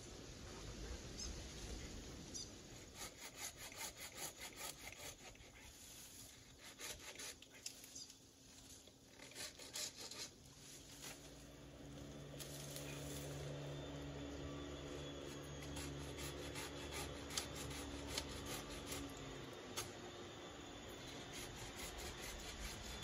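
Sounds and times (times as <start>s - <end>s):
hand saw cutting branches: 2.8s - 7.8s, 9.1s - 11.3s, 15.2s - 19.9s, 21.0s - 23.0s.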